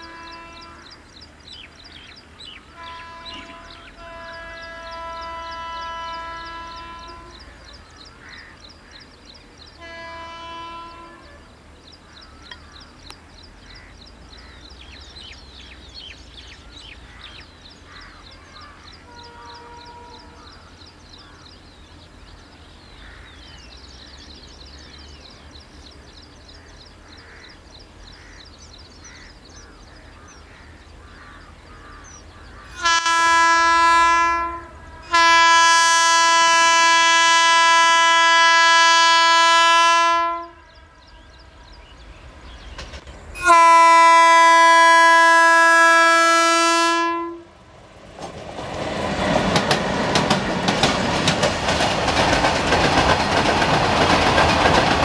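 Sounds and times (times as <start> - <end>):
locomotive horn blasts: 0.0 - 1.0, 2.7 - 7.5, 9.8 - 11.5, 19.0 - 20.4, 32.7 - 41.8, 43.3 - 47.6.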